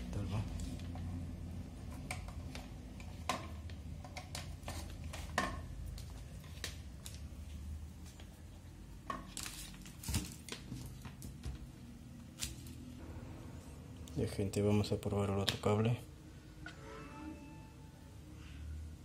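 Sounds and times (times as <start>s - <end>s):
plastic packaging rustling: 9.2s - 11.4s.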